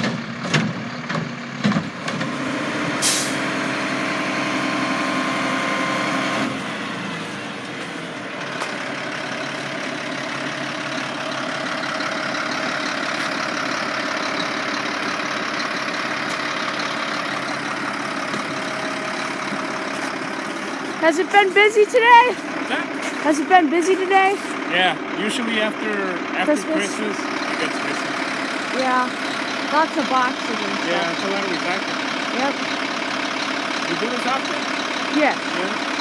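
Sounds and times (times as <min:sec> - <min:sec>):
truck engine running: 0:00.0 - 0:36.0
air brake hiss: 0:03.0 - 0:03.4.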